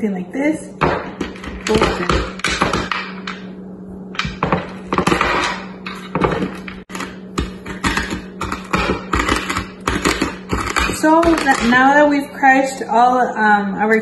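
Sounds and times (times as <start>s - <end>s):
hard candy crunching: 6.8s - 11.9s.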